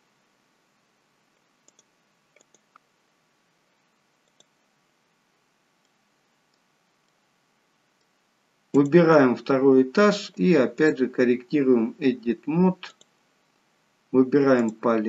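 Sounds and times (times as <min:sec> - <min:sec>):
faint computer mouse clicks: 0:01.4 - 0:02.9, 0:04.2 - 0:04.6, 0:12.9 - 0:13.2.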